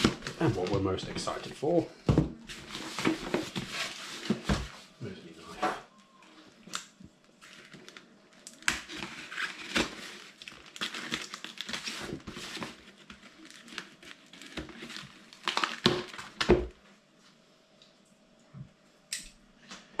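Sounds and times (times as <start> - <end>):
cardboard scraping and crinkling: 2.5 - 4.9, 8.8 - 16.3.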